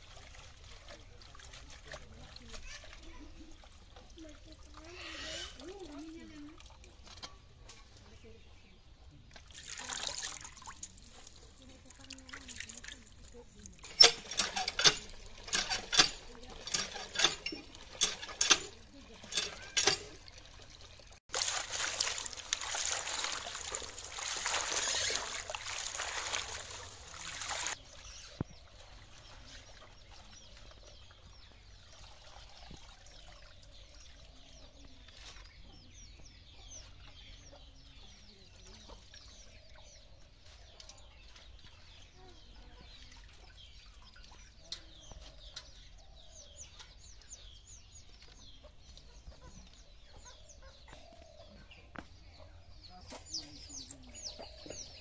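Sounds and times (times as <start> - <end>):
small birds chirping: 0.0 - 9.5, 10.6 - 21.2, 22.0 - 55.0
water splashing in metal bowl: 9.4 - 27.8
chickens clucking: 48.2 - 55.0.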